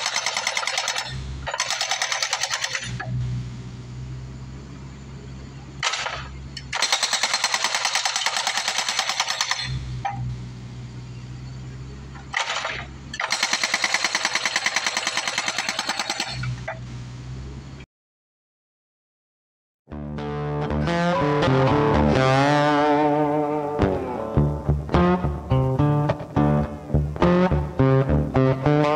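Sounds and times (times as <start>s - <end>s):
hydraulic hammer breaking concrete: 0.0s - 3.1s, 5.8s - 9.8s, 12.2s - 16.8s
diesel engine running: 0.0s - 17.8s.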